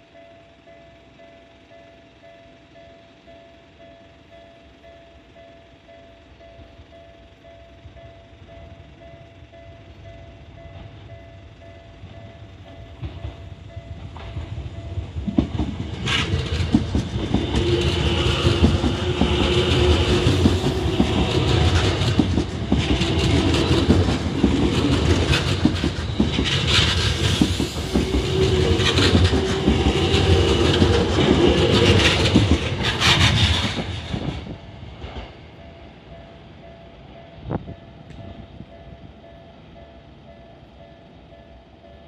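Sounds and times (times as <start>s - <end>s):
train rumbling past: 0.0s - 42.0s
wheels clacking over rail joints: 13.0s - 35.3s.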